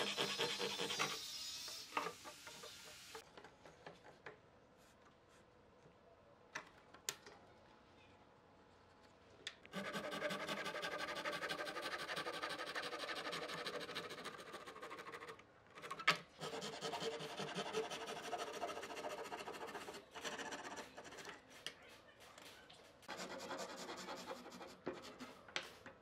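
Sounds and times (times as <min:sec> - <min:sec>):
handsaw cutting wood: 0:00.0 - 0:01.2, 0:09.8 - 0:15.2, 0:16.4 - 0:21.0.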